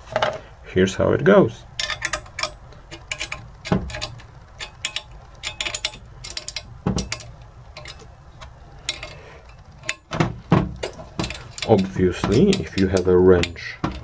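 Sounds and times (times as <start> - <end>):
wrench clicking on metal nuts: 1.7 - 14.0
dull knocks: 10.1 - 11.3.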